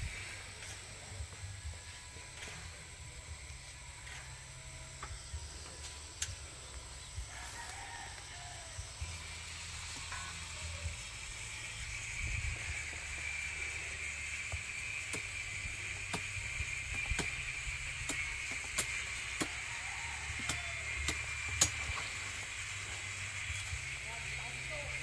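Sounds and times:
steady high-pitched hum: 0:00.0 - 0:25.0
sickle hacking a stalk: 0:16.0 - 0:17.4, 0:18.1 - 0:19.6.

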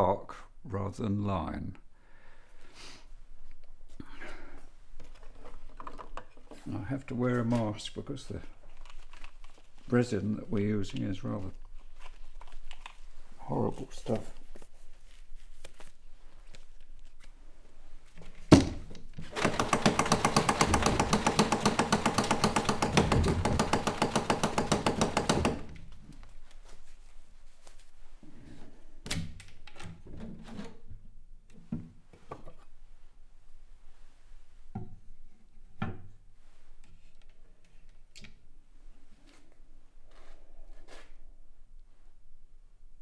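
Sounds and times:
wooden box thunk: 0:18.5 - 0:24.3
rapid rattling in wooden box: 0:19.3 - 0:25.7.

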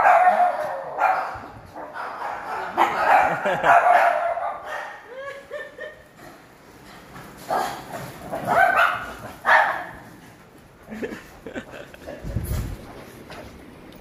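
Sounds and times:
dog barking: 0:00.0 - 0:05.0, 0:08.5 - 0:10.0.

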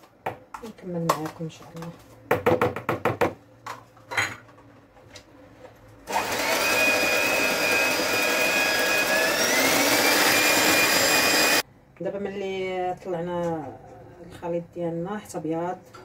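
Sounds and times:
electric hand mixer whirring: 0:06.1 - 0:11.6.

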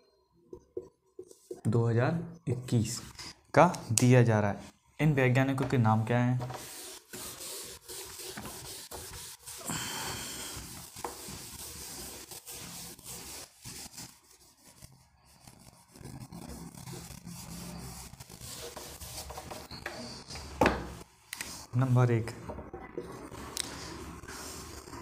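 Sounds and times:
pen scratching on paper: 0:06.6 - 0:09.7, 0:10.4 - 0:20.4.

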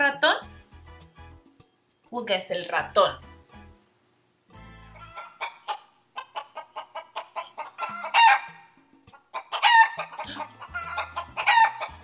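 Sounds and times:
chicken calling: 0:04.9 - 0:12.0
chicken clucking: 0:05.0 - 0:12.0.

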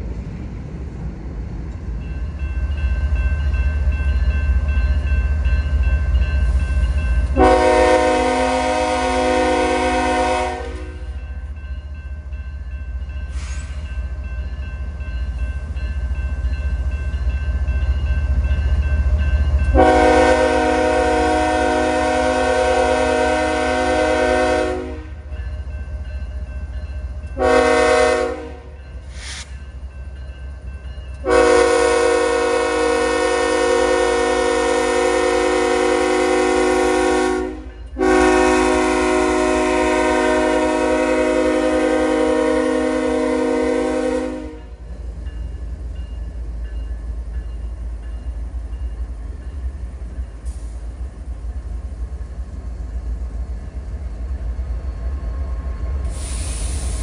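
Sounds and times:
train rolling past rumble: 0:00.0 - 0:57.0
locomotive air horn blasts: 0:07.3 - 0:11.2, 0:19.7 - 0:25.2, 0:27.4 - 0:28.7, 0:31.2 - 0:44.8.

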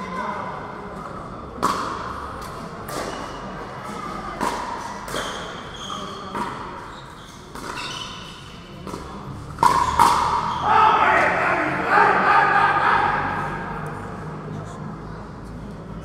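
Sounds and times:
background chatter: 0:00.0 - 0:16.0.

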